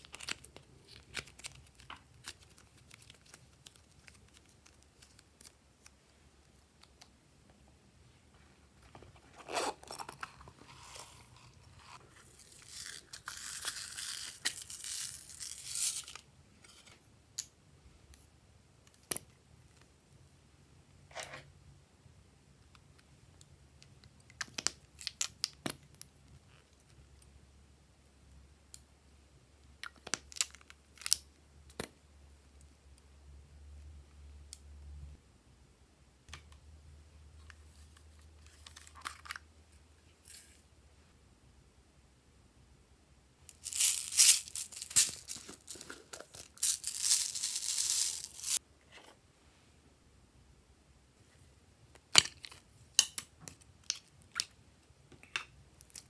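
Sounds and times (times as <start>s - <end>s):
flakes crackling in slime: 43.5s - 48.6s.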